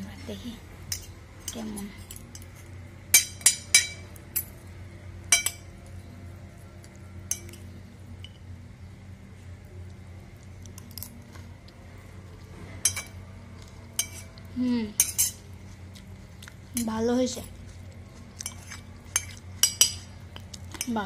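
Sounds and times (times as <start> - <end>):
low steady hum: 0.0 - 21.0
metal spoon clinking on a plate: 0.9 - 4.6, 5.3 - 5.7, 7.3 - 7.6, 12.8 - 13.2, 14.0 - 14.3, 15.0 - 15.4, 18.4 - 21.0.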